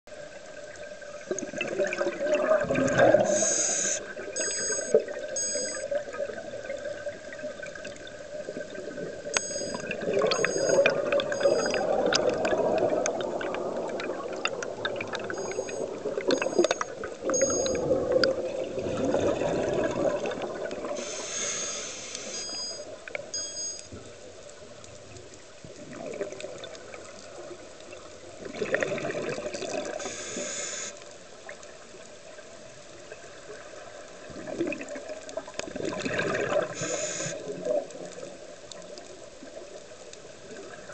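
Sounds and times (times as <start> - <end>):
exhaled bubbles gurgling underwater: 0.1 - 40.9
regulator inhalation hiss: 3.2 - 5.8, 21.0 - 22.8, 30.0 - 31.0, 36.7 - 37.4
faint clicks: 9.2 - 18.4, 20.6 - 28.0.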